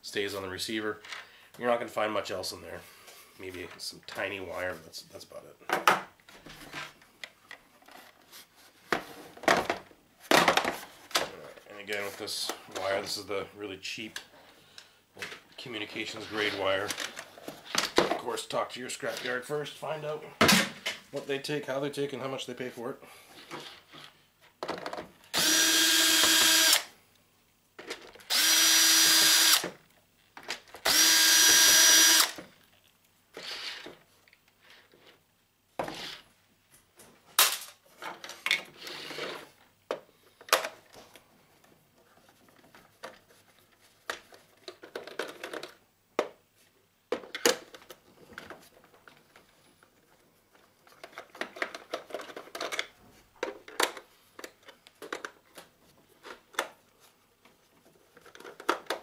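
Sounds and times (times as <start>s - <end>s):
cordless drill running: 25.3s - 26.9s, 28.3s - 29.7s, 30.8s - 32.4s.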